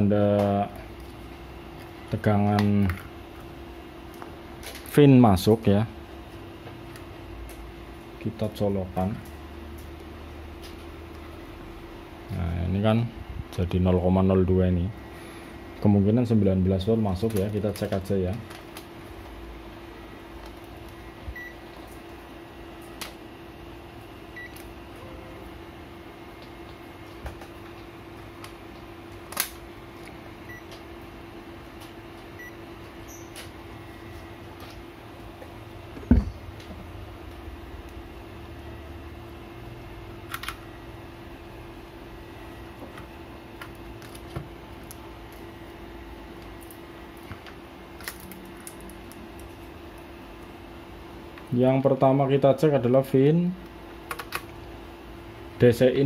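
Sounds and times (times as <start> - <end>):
bench equipment hum: 0.0 - 56.0
multimeter high beeps: 21.3 - 21.6, 32.4 - 33.4.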